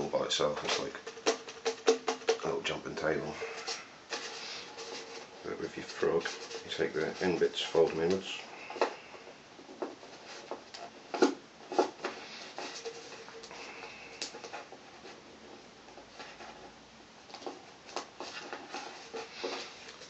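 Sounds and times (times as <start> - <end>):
paper crinkling and rustling: 0.0 - 20.0.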